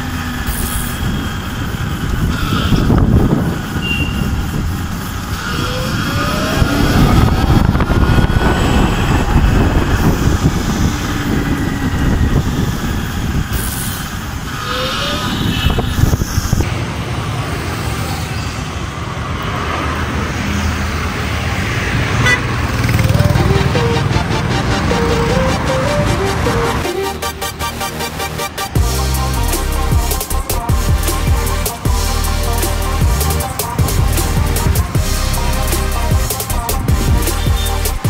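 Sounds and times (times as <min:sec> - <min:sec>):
tyre and traffic noise: 0:00.0 - 0:38.0
wind rumble: 0:00.0 - 0:38.0
brief rising whines: 0:02.3 - 0:16.7, 0:22.8 - 0:30.7.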